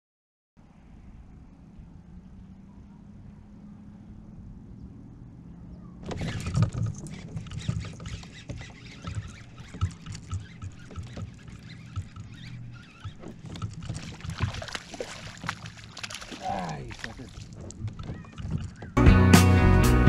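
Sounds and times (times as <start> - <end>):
fish splashing: 6.0 - 19.0
fishing gear knocks and clicks: 6.0 - 19.0.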